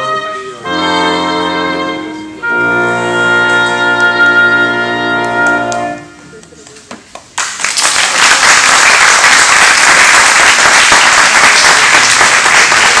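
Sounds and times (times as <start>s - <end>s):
audience applauding: 7.3s - 13.0s.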